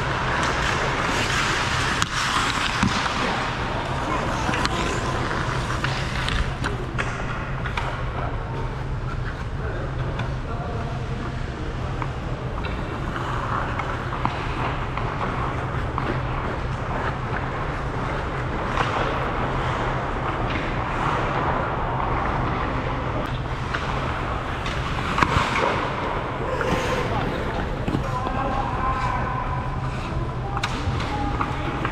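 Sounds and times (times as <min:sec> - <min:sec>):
skates scraping on ice: 0:00.0 - 0:07.1
steady low hum: 0:00.0 - 0:31.9
hockey stick or puck clacks: 0:00.2 - 0:03.5, 0:23.6 - 0:25.9.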